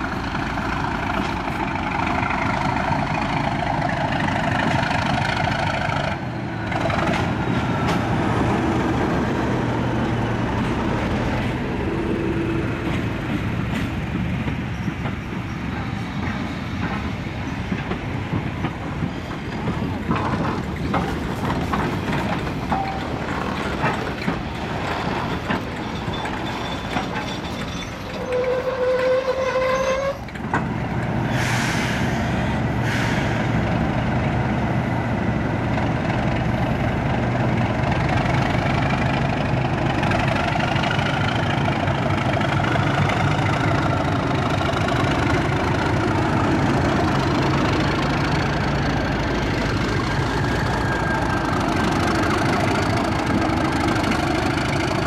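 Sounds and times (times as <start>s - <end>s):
diesel locomotive engine running: 0.0s - 55.0s
train wheels clattering over rail joints: 0.0s - 55.0s
brief high wheel squeal: 22.7s - 23.2s, 25.2s - 30.4s.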